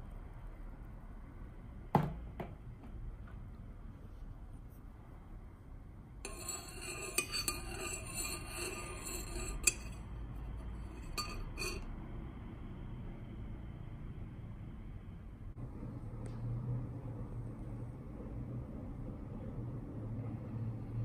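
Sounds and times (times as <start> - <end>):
spoon clinking in mug: 6.3 - 10.0, 10.8 - 11.8
teaspoon stirring in ceramic mug: 6.3 - 11.9.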